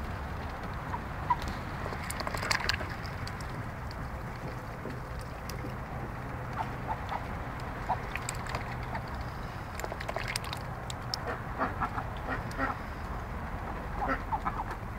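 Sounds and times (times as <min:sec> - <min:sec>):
steady low hum: 0:00.0 - 0:14.9
duck bills splashing in water: 0:01.2 - 0:05.9, 0:06.5 - 0:12.8
soft duck calls: 0:11.2 - 0:12.8, 0:14.0 - 0:14.8.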